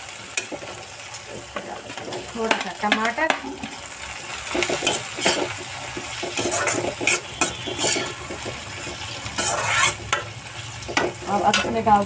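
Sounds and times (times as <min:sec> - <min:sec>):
sizzle of frying: 0:00.0 - 0:12.0
metal spoon scraping a pan: 0:04.4 - 0:12.0.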